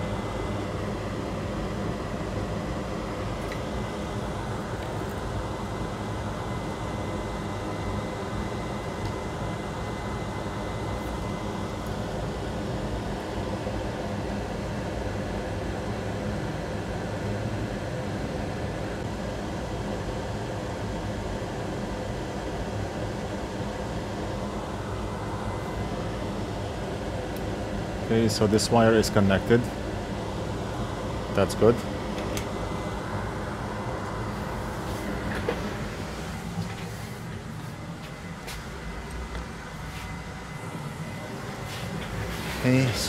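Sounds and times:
faint high whine: 0.0s - 19.0s, 22.8s - 43.0s
fan whirring: 0.0s - 43.0s.

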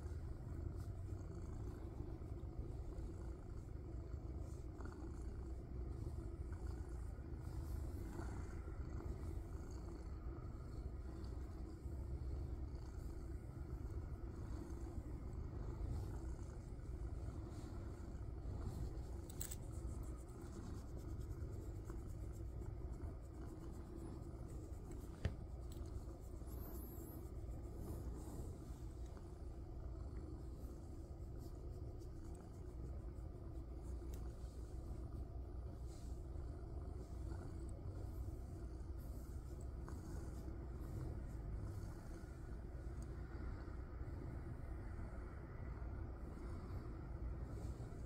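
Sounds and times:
cat purring: 0.0s - 48.0s
hand stroking fur: 5.5s - 43.6s.

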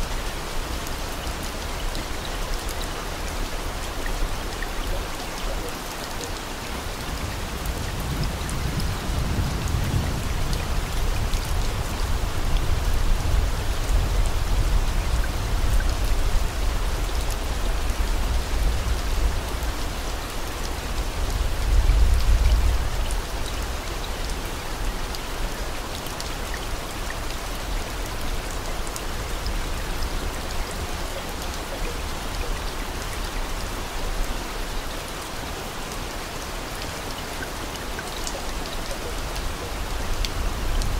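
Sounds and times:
steady rain falling: 0.0s - 40.9s.

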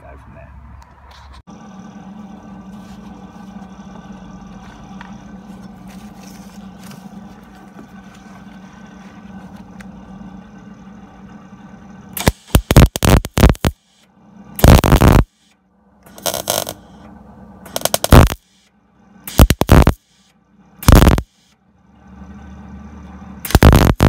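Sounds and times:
machine hum: 0.6s - 24.0s
welder crackling bursts: 12.2s - 14.0s, 14.6s - 15.5s, 16.1s - 16.8s, 17.7s - 18.6s, 19.3s - 20.2s, 20.8s - 21.5s, 23.4s - 24.0s.

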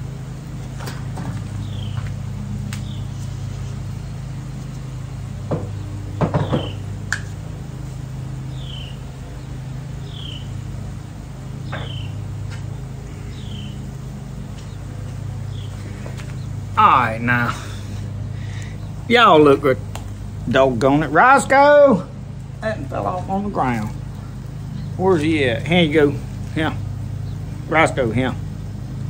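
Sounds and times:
low even hum: 0.0s - 29.0s.

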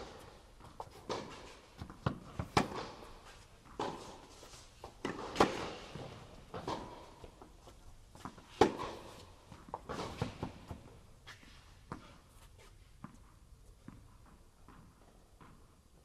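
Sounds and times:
tennis balls bouncing: 0.0s - 12.2s, 13.0s - 16.0s
tennis balls struck by racquets: 0.0s - 12.2s.

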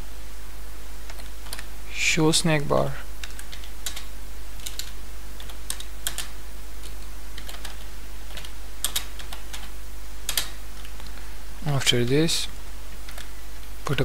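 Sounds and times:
keyboard typing: 1.1s - 1.7s, 3.2s - 11.1s, 13.0s - 14.0s.

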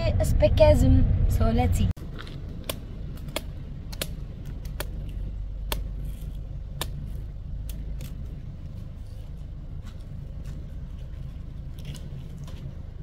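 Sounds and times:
steady low rumble: 0.0s - 13.0s
machete chopping coconut husk: 2.6s - 8.2s.

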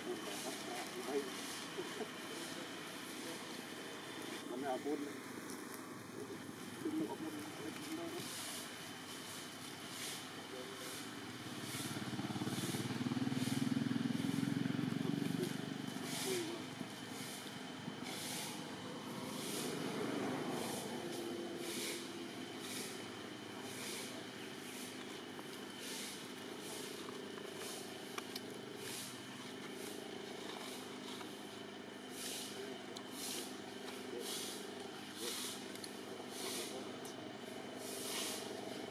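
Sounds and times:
vehicle engine idling: 0.0s - 38.9s
high hiss: 7.7s - 25.0s, 37.7s - 38.8s
vehicle engine passing: 10.6s - 25.0s.

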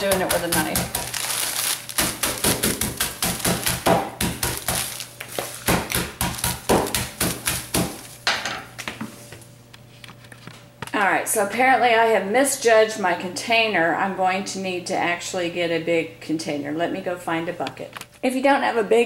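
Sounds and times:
metal mallet pounding bag: 0.0s - 8.1s.

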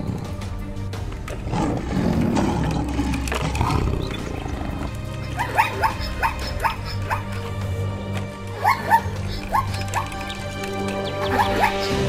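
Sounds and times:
big cat roar: 0.0s - 7.0s
background music: 0.0s - 12.0s
squeaky chirps: 2.7s - 7.6s, 8.4s - 12.0s.

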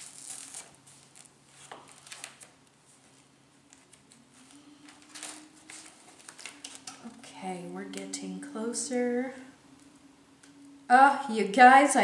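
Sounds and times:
paper pages turning: 0.0s - 7.2s.

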